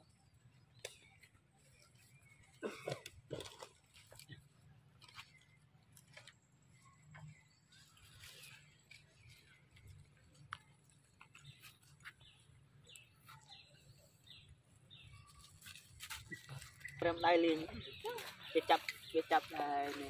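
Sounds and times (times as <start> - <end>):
faint high bird chirps: 11.3 - 20.0.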